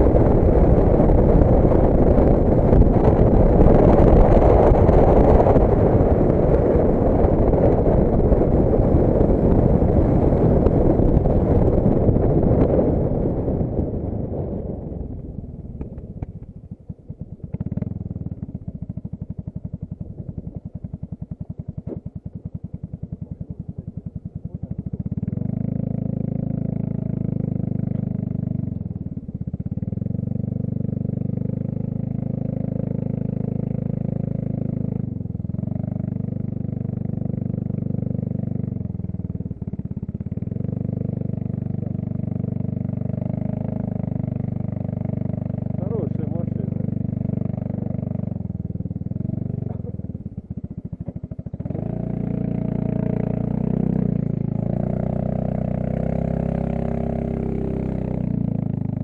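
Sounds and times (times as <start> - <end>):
scooter engine running: 0.0 - 59.0.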